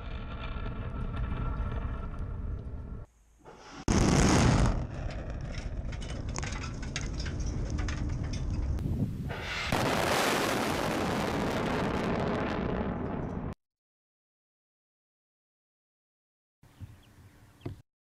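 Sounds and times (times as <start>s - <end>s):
rumbling rocket roar with crackles: 0.0s - 3.1s, 3.8s - 13.6s
missile launch blast: 3.9s - 5.1s, 9.3s - 13.6s.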